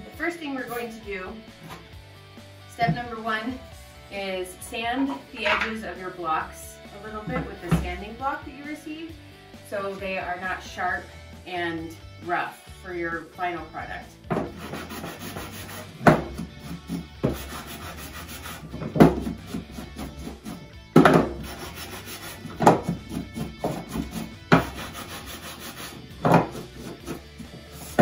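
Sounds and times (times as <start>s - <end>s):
wood knocking on table: 5.4s - 5.7s
sanding block rasping on wood: 14.4s - 28.0s.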